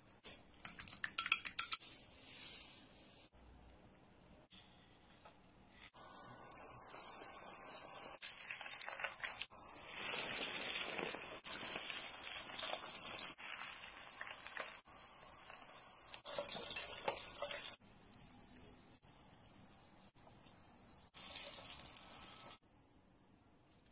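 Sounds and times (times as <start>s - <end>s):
hot oil sizzling: 6.0s - 17.8s, 21.1s - 22.6s.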